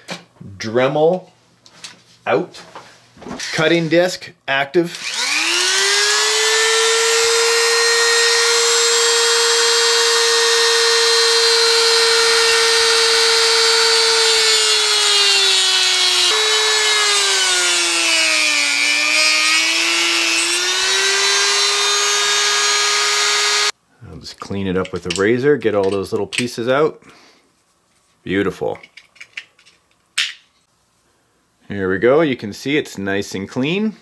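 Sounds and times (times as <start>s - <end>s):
rotary tool whining: 5.0s - 23.7s.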